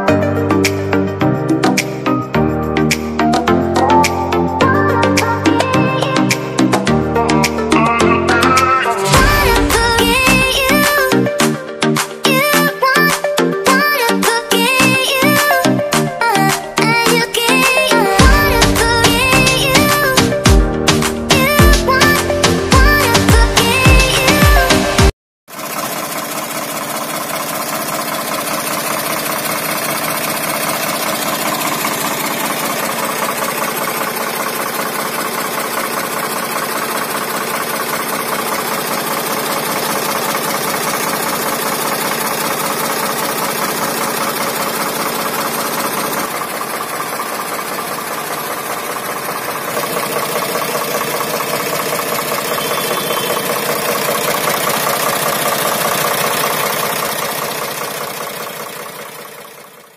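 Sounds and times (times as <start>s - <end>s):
diesel tractor engine idling: 3.8s - 11.5s, 13.7s - 24.9s, 25.5s - 59.9s.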